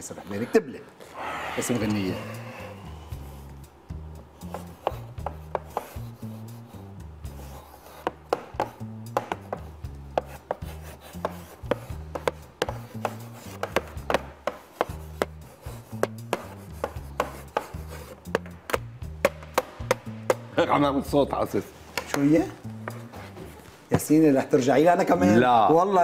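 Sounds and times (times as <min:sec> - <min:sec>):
chalk tapping and scratching: 0:04.4 - 0:20.5.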